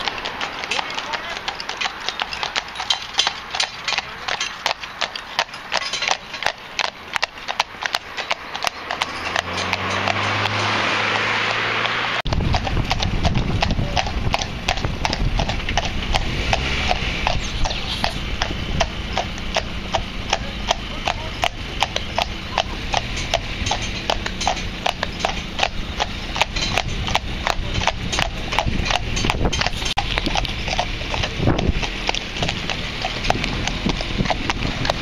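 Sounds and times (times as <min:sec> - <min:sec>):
hooves clip-clopping on tarmac: 0:00.0 - 0:35.0
cart rolling rumble: 0:12.2 - 0:35.0.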